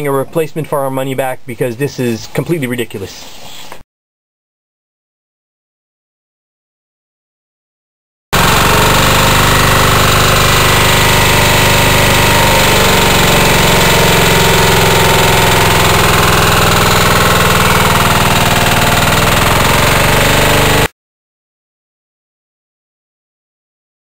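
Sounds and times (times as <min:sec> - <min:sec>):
diesel engine running: 0:08.4 - 0:20.9.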